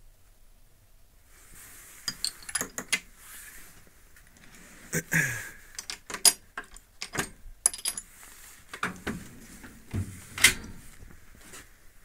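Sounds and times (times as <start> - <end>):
metal tools clinking: 2.1 - 2.8, 5.8 - 8.1.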